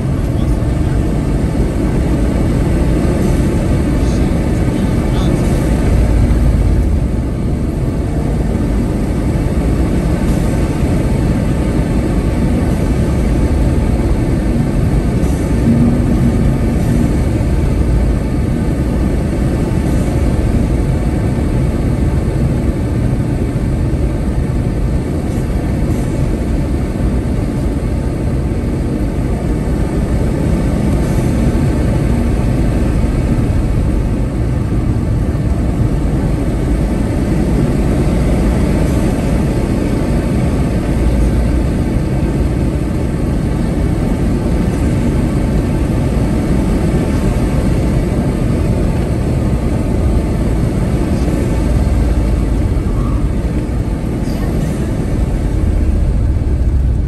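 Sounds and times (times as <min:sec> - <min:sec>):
car engine rumble: 0:00.0 - 0:57.0.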